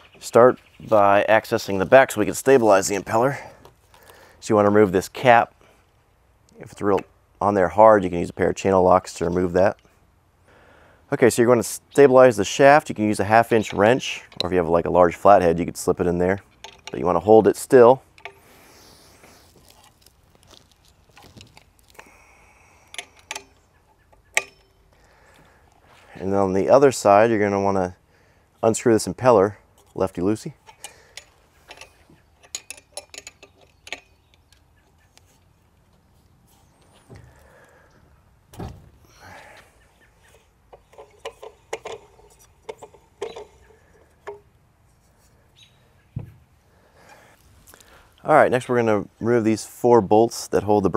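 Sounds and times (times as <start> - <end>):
handling tools and metal parts: 12.5 - 21.9, 22.8 - 26.2, 28.6 - 37.6, 38.6 - 45.4
sharp metallic clicks: 22.8 - 25.0.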